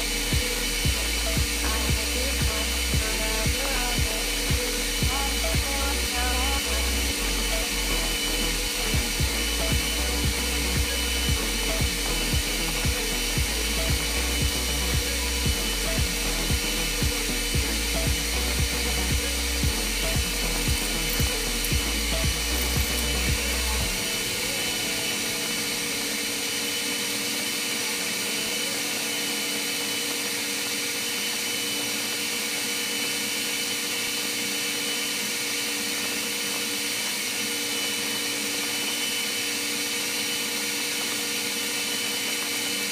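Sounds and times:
music with thumping beat: 0:00.0 - 0:05.9, 0:07.6 - 0:24.0
machinery drone and hum: 0:00.0 - 0:42.8
arc welding hiss: 0:00.0 - 0:42.9.

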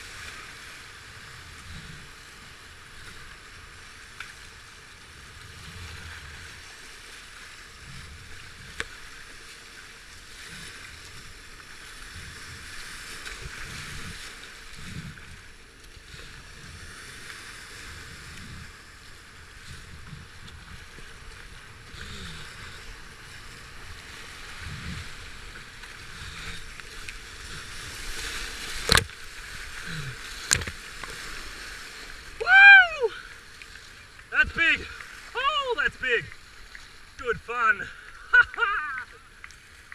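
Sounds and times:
paddle strokes in water: 0:00.0 - 0:39.9
river rapids rushing: 0:32.3 - 0:33.1, 0:34.3 - 0:36.4, 0:37.0 - 0:39.5.

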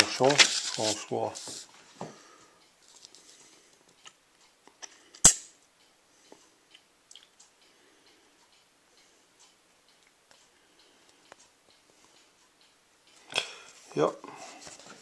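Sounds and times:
paper sheet handling: 0:00.0 - 0:01.6.

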